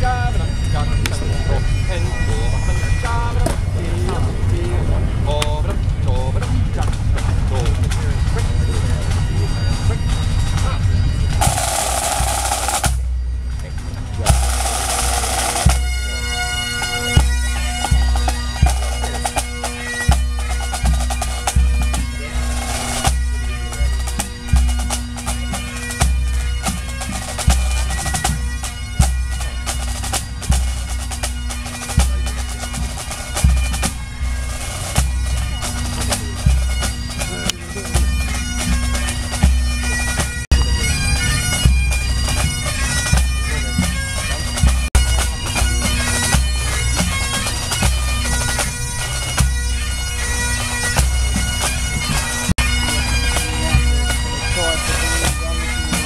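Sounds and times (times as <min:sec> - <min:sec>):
bagpipes playing a tune: 0:00.0 - 0:56.0
bass drum beating: 0:09.2 - 0:49.8
snare drums: 0:11.4 - 0:13.0, 0:14.2 - 0:15.8.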